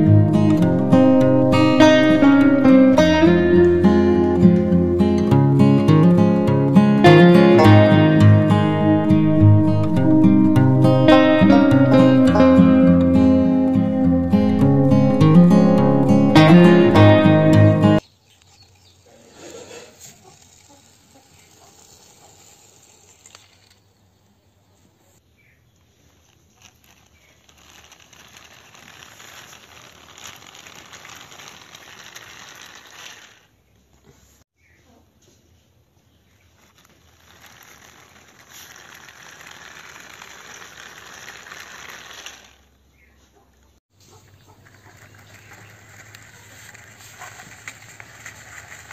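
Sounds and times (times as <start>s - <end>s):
acoustic guitar music: 0.0s - 18.0s
toy car wheels rolling on pavement: 18.0s - 25.0s, 25.7s - 34.4s, 36.2s - 43.1s, 44.0s - 48.9s.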